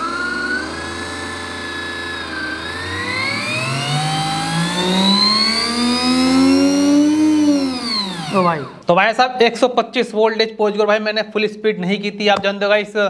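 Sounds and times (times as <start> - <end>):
electric motor whine: 0.0 - 8.9.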